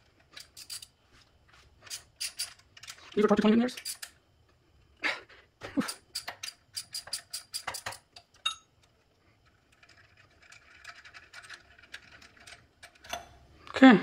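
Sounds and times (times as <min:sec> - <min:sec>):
hand ratchet clicking: 0:01.9 - 0:03.0, 0:05.8 - 0:08.0.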